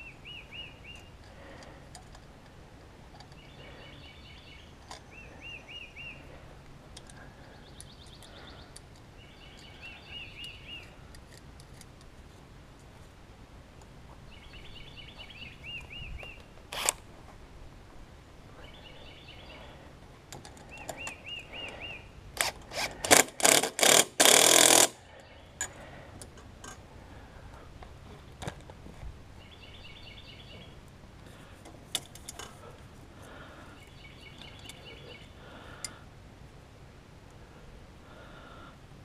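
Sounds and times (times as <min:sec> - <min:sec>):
small birds chirping trills: 0:00.0 - 0:02.0, 0:03.1 - 0:12.4, 0:13.8 - 0:16.7, 0:18.5 - 0:22.3, 0:25.0 - 0:26.1, 0:29.3 - 0:31.6, 0:32.2 - 0:36.1
clicks and knocks of handled parts: 0:00.9 - 0:03.5, 0:06.9 - 0:12.9, 0:20.2 - 0:21.8, 0:22.4 - 0:26.9, 0:31.2 - 0:32.9.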